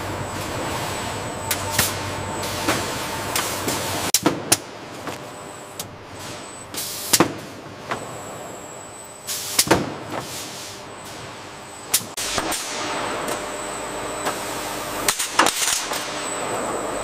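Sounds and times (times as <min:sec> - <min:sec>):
faint high whine: 0:00.0 - 0:04.1, 0:05.3 - 0:06.8, 0:08.1 - 0:09.6, 0:10.8 - 0:17.0
industrial machinery running: 0:00.0 - 0:17.0.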